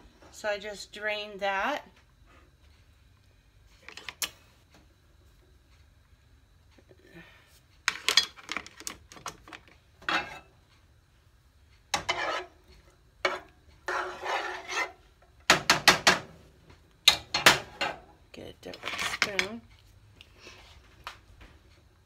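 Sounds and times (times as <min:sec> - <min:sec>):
pots and utensils clinking: 0:10.0 - 0:10.5
spatula scraping frying pan: 0:10.0 - 0:10.5, 0:11.9 - 0:15.2, 0:18.7 - 0:19.6.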